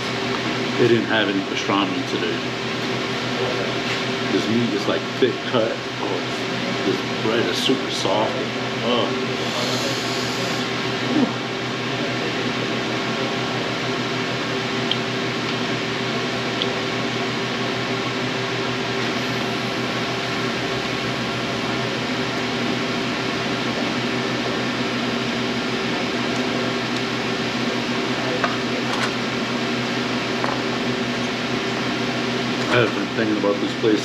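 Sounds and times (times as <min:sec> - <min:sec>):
fan humming: 0:00.0 - 0:34.0.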